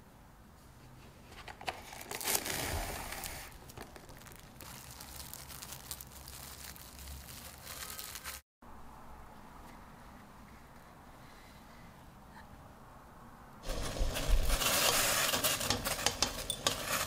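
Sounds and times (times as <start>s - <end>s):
plastic cling wrap crinkling: 1.5s - 8.4s, 13.6s - 17.0s.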